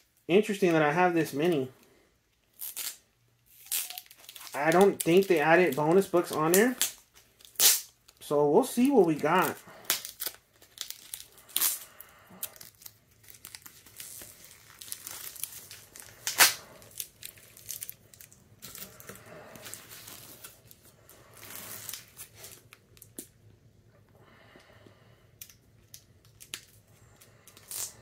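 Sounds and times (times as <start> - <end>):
plastic crinkling: 2.4 - 23.4
paper tearing and crumpling: 9.0 - 22.8.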